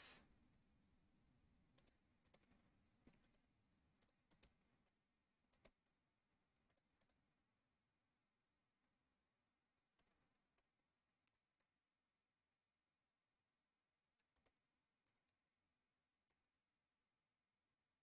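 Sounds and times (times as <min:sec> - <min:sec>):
computer mouse clicks: 0:01.8 - 0:03.4, 0:04.0 - 0:05.8, 0:06.7 - 0:07.2, 0:14.2 - 0:15.6.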